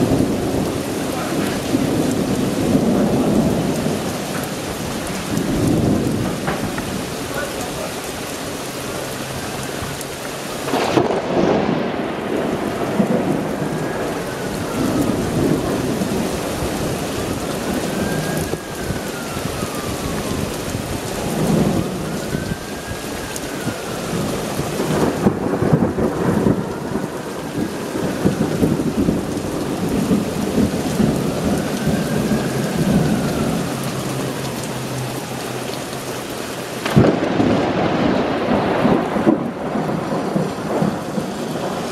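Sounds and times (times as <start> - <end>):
heavy rain: 0.0 - 41.9
thunder rumbling: 0.0 - 41.9.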